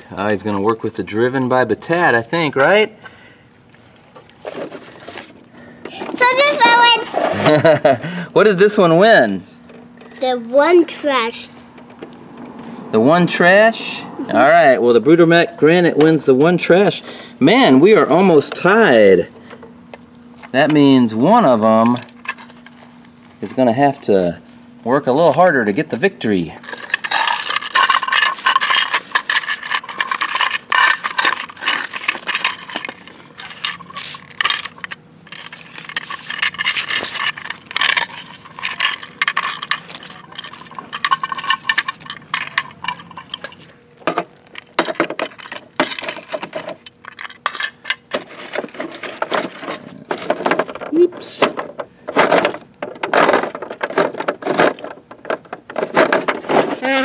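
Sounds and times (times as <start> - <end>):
plastic toys clicking and clattering: 21.4 - 22.8, 26.6 - 57.0
paper scraping on concrete: 26.6 - 38.8.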